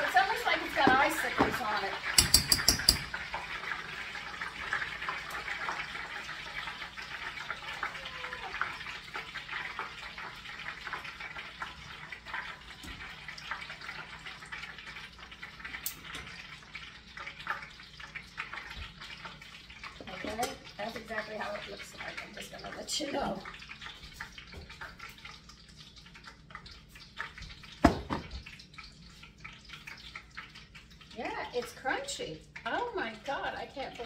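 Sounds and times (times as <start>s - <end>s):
hot oil sizzling in a pot: 0.0s - 34.0s
small pops and crackles of oil: 14.8s - 16.4s.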